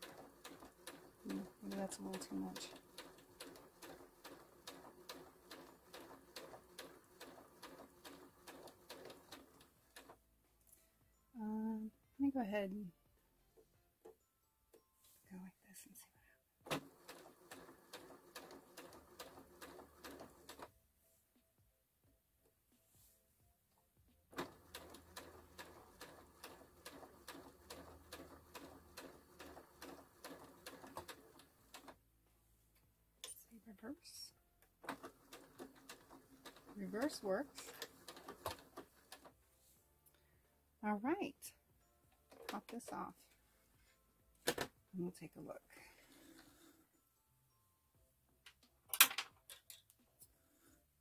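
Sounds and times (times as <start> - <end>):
sewing machine ticking: 0.0 - 10.2, 16.7 - 20.7, 24.3 - 32.0, 34.8 - 39.3.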